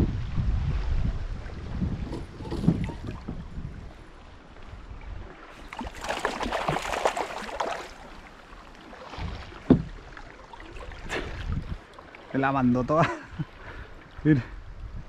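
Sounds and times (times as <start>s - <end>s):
fish splashing at surface: 5.6s - 8.4s
knock against kayak: 9.2s - 10.0s.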